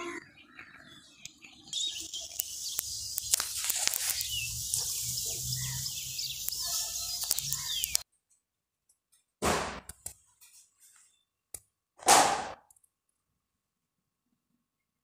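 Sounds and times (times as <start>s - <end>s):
birds chirping: 0.0s - 8.0s
steady high-pitched hiss: 1.8s - 8.0s
clicks: 2.3s - 5.0s, 6.3s - 8.0s.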